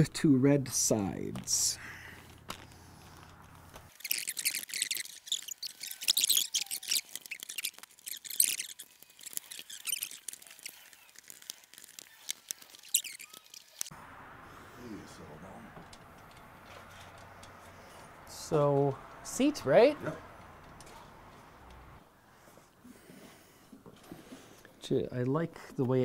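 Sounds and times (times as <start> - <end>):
plastic crinkling: 2.2 - 13.9.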